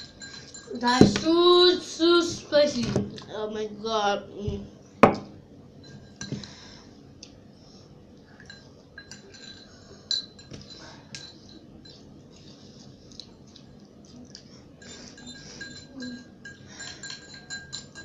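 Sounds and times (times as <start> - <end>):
cutlery clinking against bowls: 0.0 - 1.2, 8.4 - 12.6, 14.8 - 18.0.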